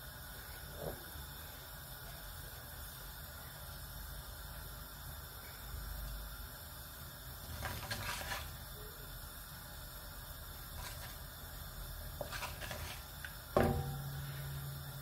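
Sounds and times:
seeds sizzling in oil: 0.0 - 15.0
wooden spatula scraping pan: 7.6 - 8.5, 12.2 - 13.1.

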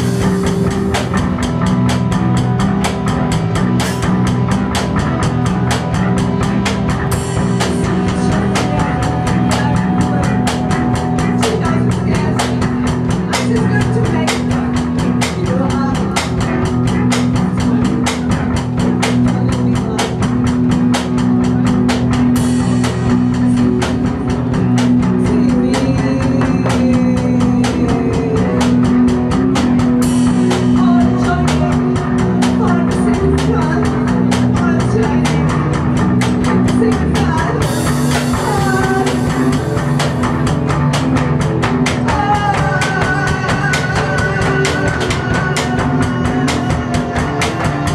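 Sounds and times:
droning electric guitar: 0.0 - 47.9
drum kit beating: 0.0 - 47.9
woman singing into microphone: 8.0 - 16.3, 25.0 - 29.0, 30.7 - 35.6, 36.6 - 39.6, 42.0 - 47.9.

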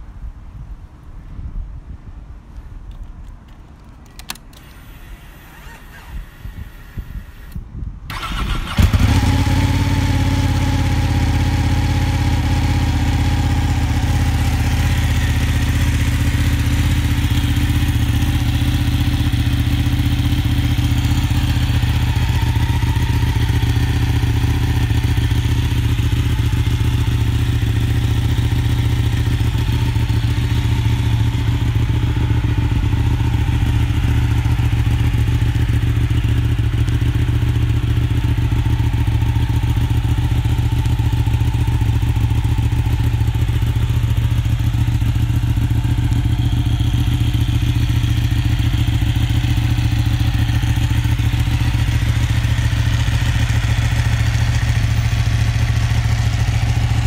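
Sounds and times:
ignition clicks: 3.8 - 8.6
motorcycle engine cranking: 3.9 - 9.7
motorcycle engine idling: 4.6 - 57.0.

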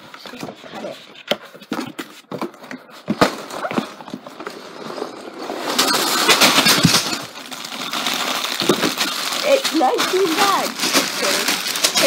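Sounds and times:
plastic bags rustling: 3.1 - 12.0.

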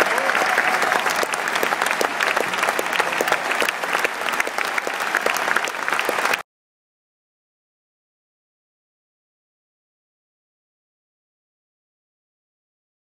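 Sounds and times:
stadium crowd applauding: 0.0 - 6.5.

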